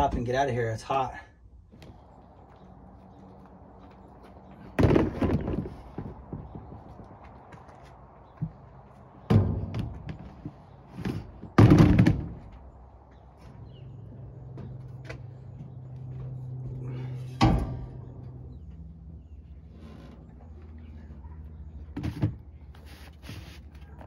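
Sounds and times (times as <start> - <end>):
loud thunks with rattles: 4.8 - 6.8, 9.3 - 10.2, 11.1 - 12.5.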